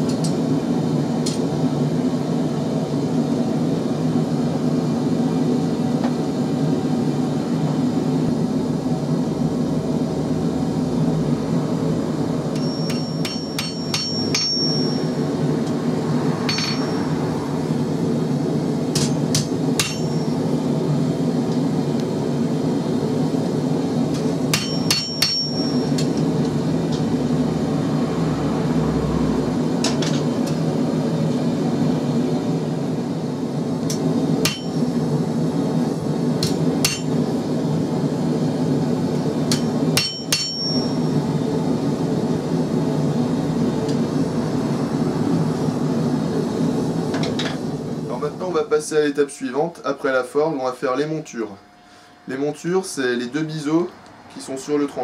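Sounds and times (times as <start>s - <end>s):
forge roaring: 6.8s - 14.1s, 14.8s - 21.3s, 25.8s - 33.2s
hammer striking metal on anvil: 12.5s - 15.2s, 16.4s - 17.1s, 18.9s - 20.4s, 24.1s - 26.3s, 33.9s - 34.8s, 36.4s - 37.2s, 39.5s - 41.0s.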